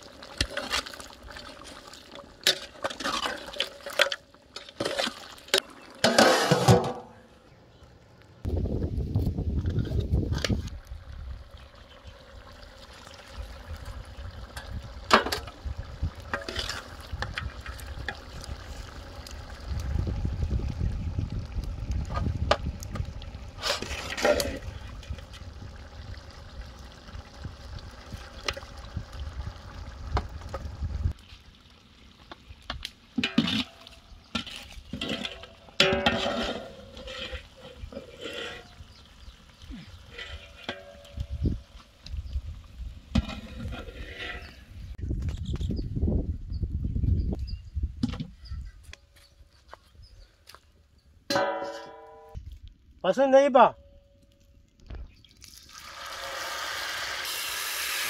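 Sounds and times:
wind rumble on microphone: 0:08.4 - 0:11.6, 0:13.3 - 0:31.2, 0:40.2 - 0:49.0.

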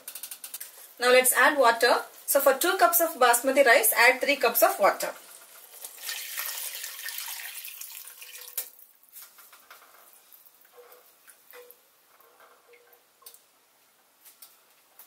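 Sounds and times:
water pouring into a pan: 0:05.3 - 0:09.0.

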